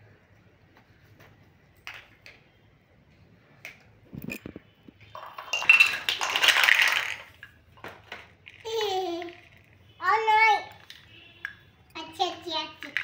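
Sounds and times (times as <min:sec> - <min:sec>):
plastic pieces clattering on stone floor: 0:05.1 - 0:09.8
plastic toy pieces clicking: 0:05.5 - 0:07.4.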